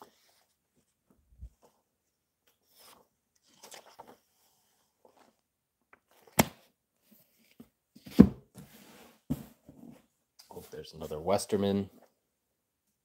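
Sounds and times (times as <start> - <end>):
book pages rustling: 0.0 - 7.8
book shutting clap: 6.2 - 6.6
book thumping on wooden table: 8.0 - 8.4, 9.3 - 9.5.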